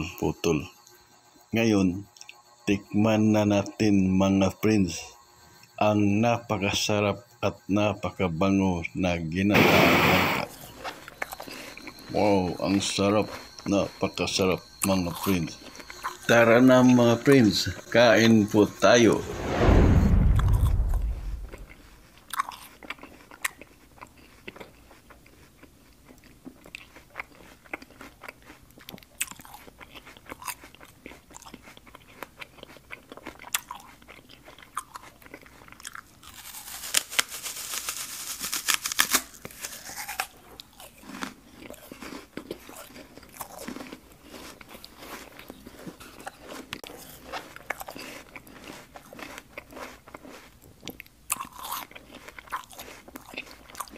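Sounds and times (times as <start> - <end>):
hissing: 9.5 - 10.6, 16.8 - 21.8
man chewing: 9.6 - 18.0, 20.4 - 36.9, 38.8 - 53.9.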